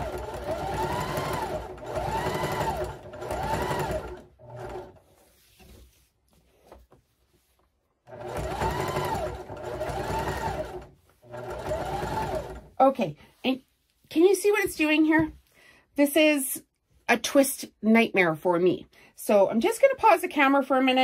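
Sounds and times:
electric sewing machine stitching: 0.0 - 5.0, 8.1 - 12.7.

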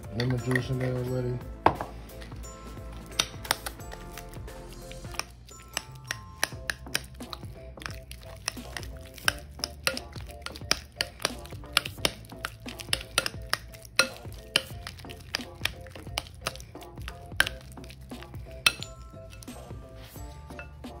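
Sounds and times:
background music: 0.0 - 21.0
fork mashing cream cheese: 2.7 - 21.0
fork clinking against glass bowl: 5.1 - 16.6, 18.5 - 19.7, 20.4 - 21.0.

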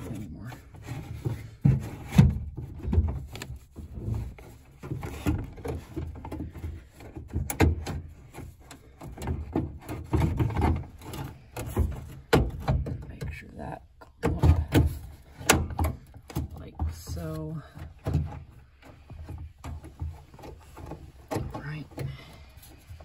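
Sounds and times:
knocks and scrapes inside door: 0.0 - 13.5, 14.1 - 23.0.

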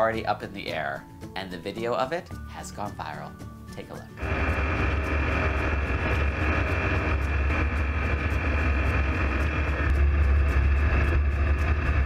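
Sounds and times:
aircraft engine drone: 4.2 - 12.0
wind rushing across microphone: 4.2 - 12.0.

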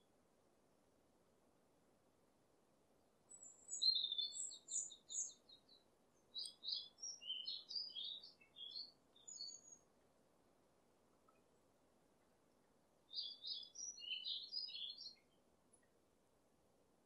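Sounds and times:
faint steady hiss: 0.0 - 17.0
songbird chirping: 2.9 - 16.3.

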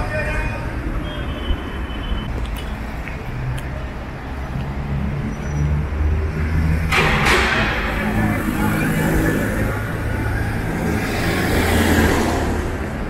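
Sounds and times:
cars driving past: 0.0 - 13.0
vehicle engine revving: 3.4 - 13.0.

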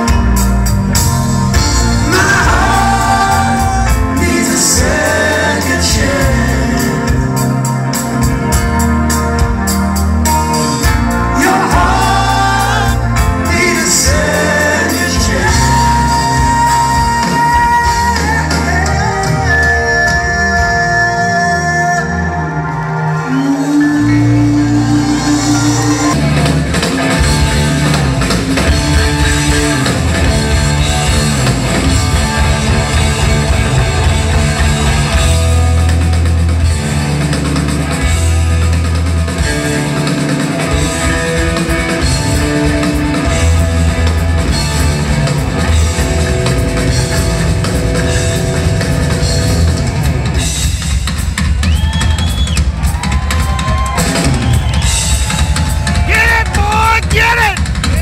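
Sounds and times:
drums: 0.0 - 58.0
rock band playing live: 0.0 - 58.0.

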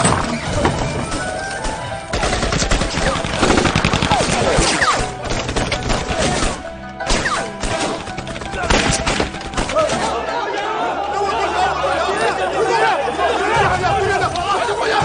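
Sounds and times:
rapid gunfire: 2.1 - 10.0
voices crying out: 9.7 - 15.0.

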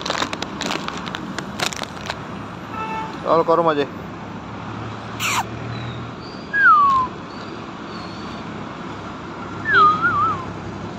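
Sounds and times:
puppy whining: 5.2 - 5.5
puppy squealing: 5.2 - 8.4.

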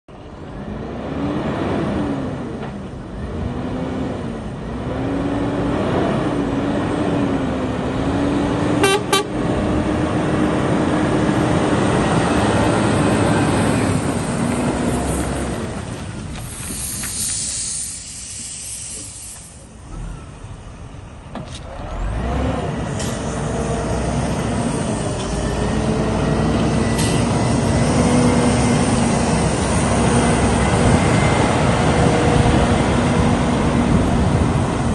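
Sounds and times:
truck diesel engine driving by: 0.1 - 34.9
air brakes hissing: 16.4 - 20.3, 26.6 - 27.8.

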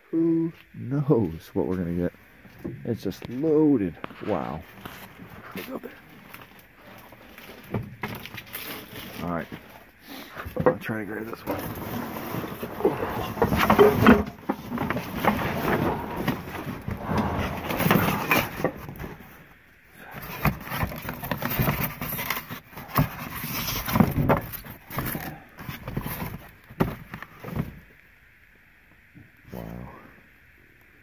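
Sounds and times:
cardboard boxes scraping and rustling: 4.2 - 27.8.

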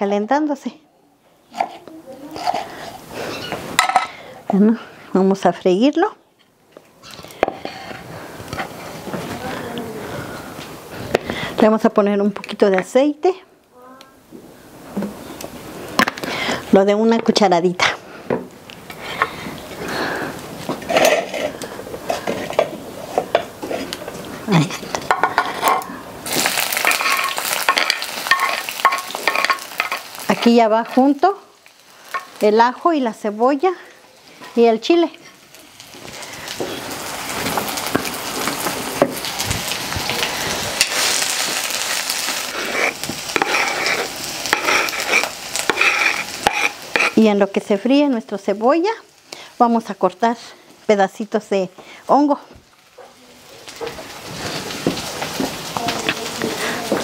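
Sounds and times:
food sizzling in hot oil: 1.4 - 4.4, 18.5 - 57.0
wooden spatula scraping and tapping: 1.5 - 4.0, 20.6 - 24.3, 26.8 - 31.2, 42.6 - 47.3, 53.8 - 57.0
wooden spatula scraping board: 1.6 - 3.7, 42.6 - 47.2.

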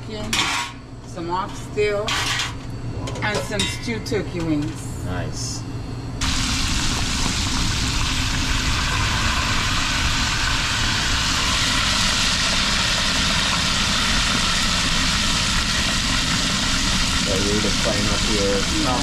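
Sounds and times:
fish frying in hot oil: 6.2 - 19.0.

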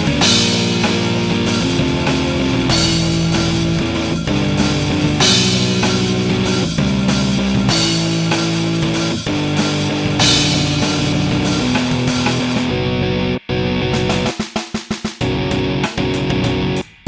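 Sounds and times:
cymbal crash: 0.0 - 12.8
electric guitar chords: 0.0 - 14.3, 15.2 - 17.0
drum kit: 0.0 - 17.0.

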